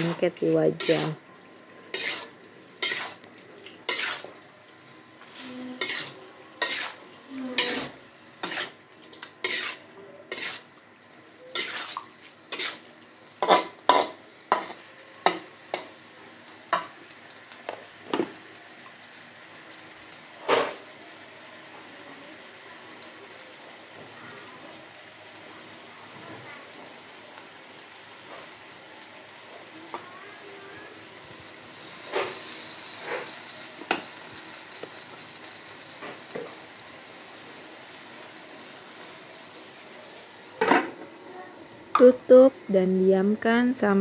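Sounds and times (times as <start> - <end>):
faint sizzle: 0.0 - 44.0
metal spatula scraping a wok: 0.8 - 1.1, 1.9 - 3.2, 3.8 - 4.4, 5.3 - 10.7, 11.5 - 15.4.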